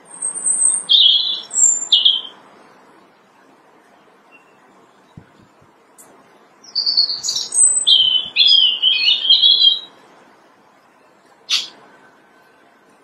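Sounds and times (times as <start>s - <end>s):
robin singing: 0.0s - 5.3s, 6.6s - 10.0s, 10.8s - 12.1s.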